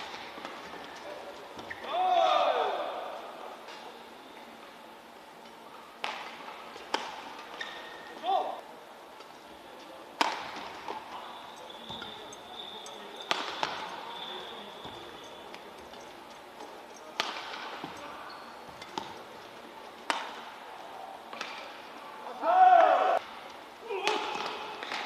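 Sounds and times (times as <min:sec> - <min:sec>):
rackets striking shuttlecock: 0:06.0 - 0:07.9, 0:10.2 - 0:19.3, 0:20.0 - 0:20.6, 0:21.3 - 0:21.8, 0:24.0 - 0:25.0.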